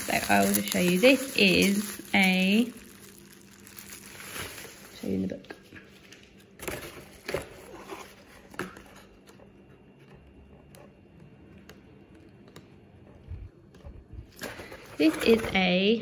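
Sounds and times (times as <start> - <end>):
paper pages rustling and turning: 0.0 - 9.9.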